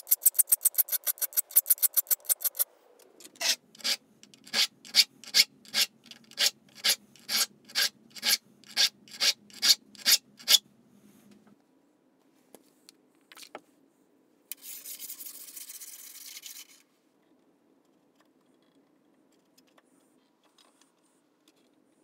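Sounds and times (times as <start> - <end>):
file rasping on saw teeth: 0.0 - 2.6, 3.4 - 10.6.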